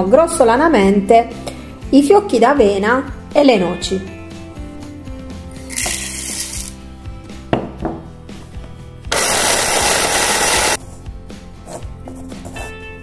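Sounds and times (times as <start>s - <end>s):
background music: 0.0s - 13.0s
oats pouring into plastic bowl: 5.7s - 6.8s
mini chopper motor running: 9.1s - 10.8s.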